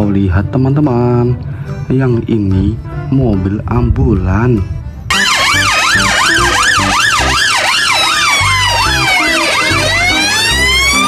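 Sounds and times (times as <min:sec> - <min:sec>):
siren wail: 0:05.1 - 0:11.0
siren yelp: 0:05.1 - 0:11.0.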